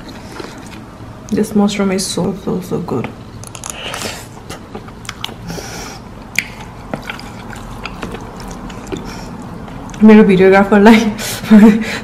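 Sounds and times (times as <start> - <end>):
wet clicks and squelches of noodles: 4.5 - 5.6, 6.2 - 10.0.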